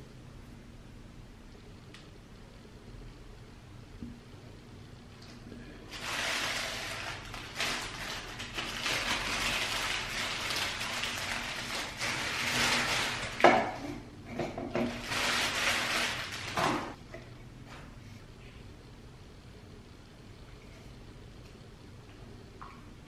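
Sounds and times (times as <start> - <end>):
plastic bag crinkling: 5.9 - 13.5, 14.8 - 17.0.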